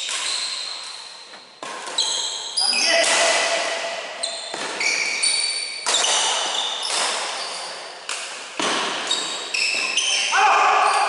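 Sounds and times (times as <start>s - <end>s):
racket hitting shuttlecock: 0.0s - 0.8s, 1.4s - 2.4s, 3.0s - 10.1s
shoes squeaking on wooden floor: 0.0s - 3.0s, 4.2s - 7.9s, 9.0s - 10.3s.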